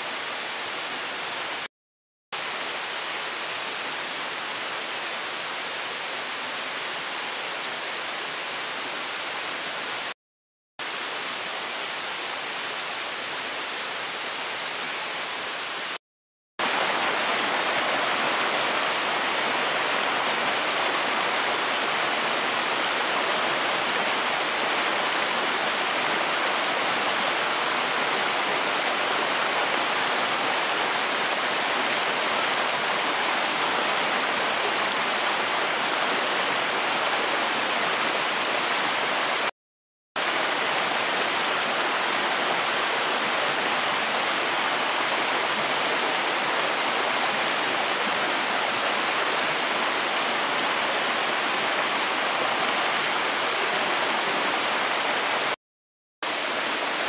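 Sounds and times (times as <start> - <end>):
river rushing over boulders: 16.6 - 39.5, 40.2 - 55.6, 56.2 - 57.0.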